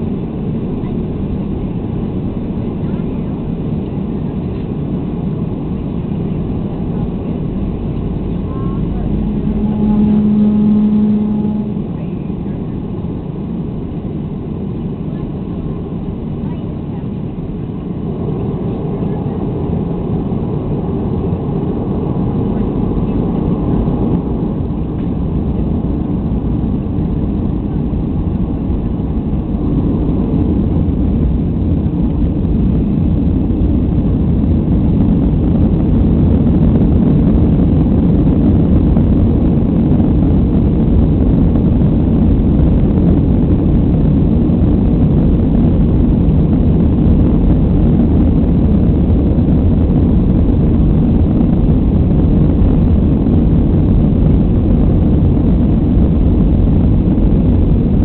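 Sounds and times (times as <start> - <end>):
jet engines rumbling on takeoff: 0.0 - 58.0.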